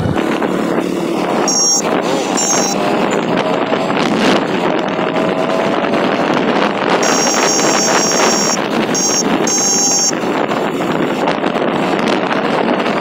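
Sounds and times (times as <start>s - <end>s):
motorcycle engine running: 0.0s - 13.0s
wind rush over microphone: 0.0s - 13.0s
thin high whistle: 1.5s - 2.8s, 7.0s - 10.2s.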